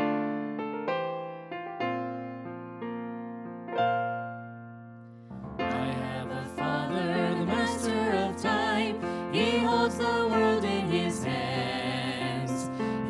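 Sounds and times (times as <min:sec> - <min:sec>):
piano playing held chords: 0:00.0 - 0:13.0
singers singing gospel: 0:05.7 - 0:13.0.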